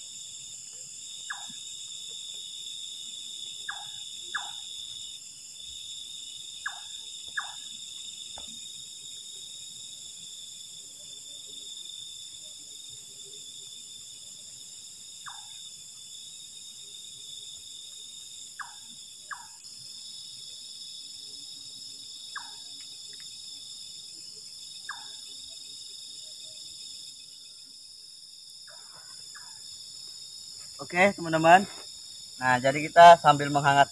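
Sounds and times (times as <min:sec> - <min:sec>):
crickets trilling: 0:00.0 - 0:33.9.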